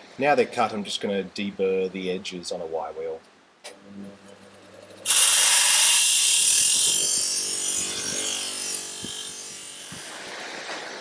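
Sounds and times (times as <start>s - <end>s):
wire wheel brushing metal edge: 4.9s - 10.6s.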